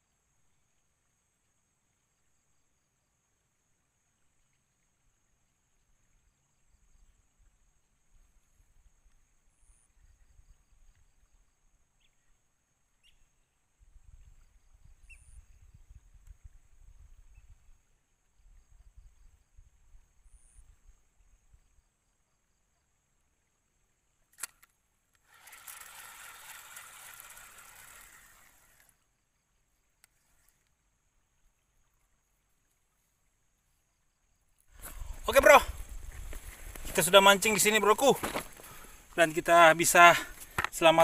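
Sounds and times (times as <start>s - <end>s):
faint bird chirps: 4.1s - 22.9s
wind rumbling on microphone: 13.8s - 21.6s, 34.7s - 37.2s
sharp click: 24.3s - 25.2s.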